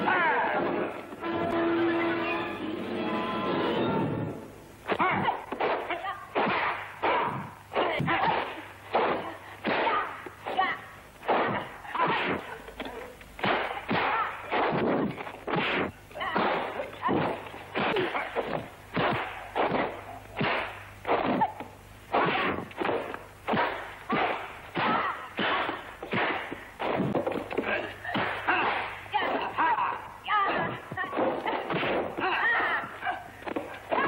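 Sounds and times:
punch and kick hits: 0:13.4 - 0:29.0, 0:30.5 - 0:32.4.

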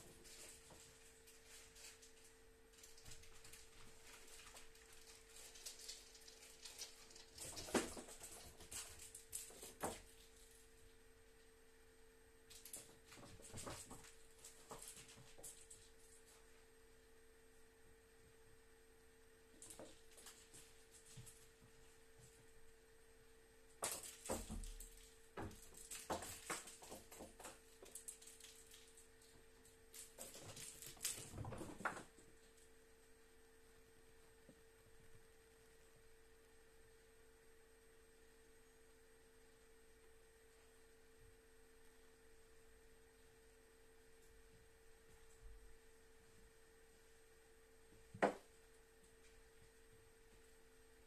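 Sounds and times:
snake rustling on bark chips: 0:00.0 - 0:10.6
faint steady hum: 0:00.0 - 0:51.0.

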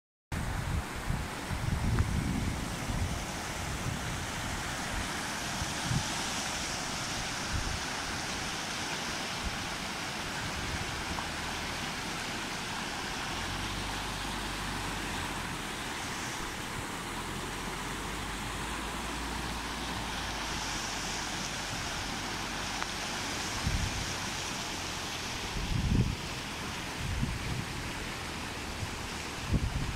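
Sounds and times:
wind buffeting the microphone: 0:00.4 - 0:08.6, 0:19.9 - 0:24.4, 0:25.4 - 0:28.0, 0:28.6 - 0:29.9
river rushing: 0:00.4 - 0:29.9.

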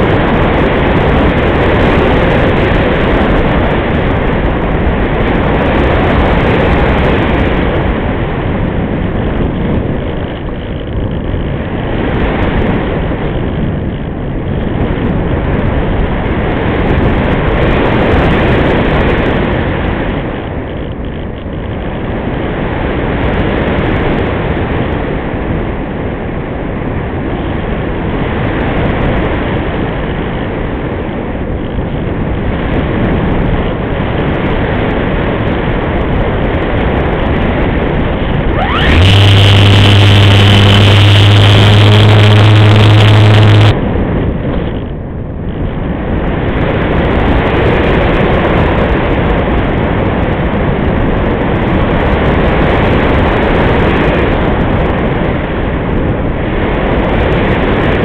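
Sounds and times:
electric motor and propeller: 0:37.3 - 0:43.8
airflow rushing: 0:38.0 - 0:43.8.

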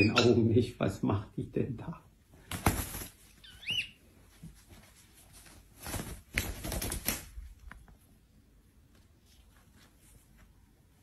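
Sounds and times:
rustling on fabric: 0:02.4 - 0:08.2, 0:08.8 - 0:11.0
parrot chirp: 0:03.3 - 0:04.0.

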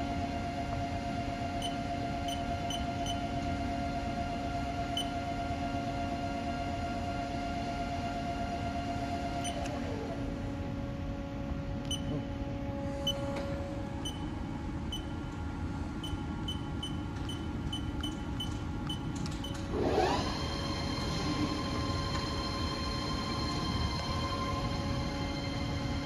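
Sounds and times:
lathe spindle whine: 0:19.6 - 0:26.0.

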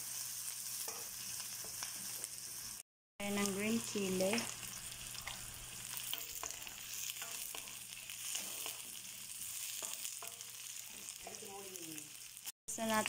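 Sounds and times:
vegetables sizzling in hot oil: 0:00.0 - 0:13.0
spatula scraping and knocking pan: 0:04.2 - 0:11.5.

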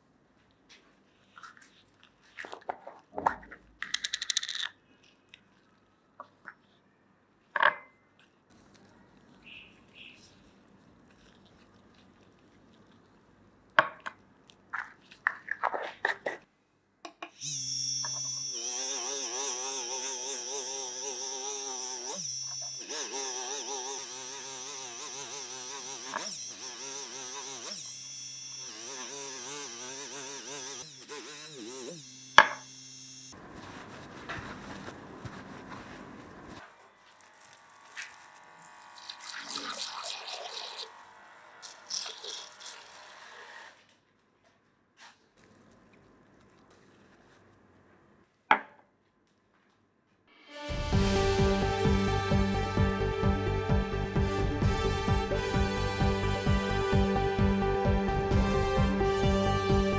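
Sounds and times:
plastic clack on stone counter: 0:03.2 - 0:04.7
polishing wheel whirring on metal: 0:17.4 - 0:33.4
rotary tool motor whine: 0:17.4 - 0:33.4, 0:36.7 - 0:43.8.

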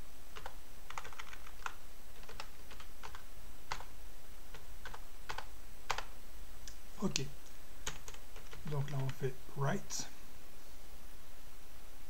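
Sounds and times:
keyboard typing: 0:00.4 - 0:03.9, 0:04.5 - 0:06.1, 0:07.8 - 0:09.3.

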